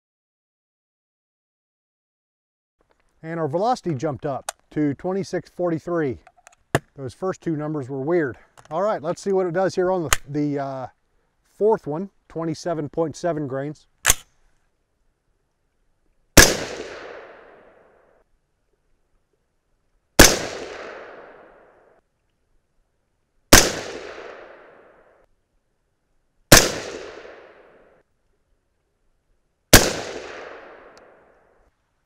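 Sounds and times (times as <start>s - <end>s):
suppressed rifle shots: 14.0s - 14.3s, 16.4s - 17.9s, 20.2s - 21.8s, 23.5s - 25.1s, 26.5s - 27.8s, 29.7s - 31.3s
gunshot echo: 16.4s - 17.9s, 20.2s - 21.8s, 23.5s - 25.0s, 26.5s - 27.8s, 29.7s - 31.2s.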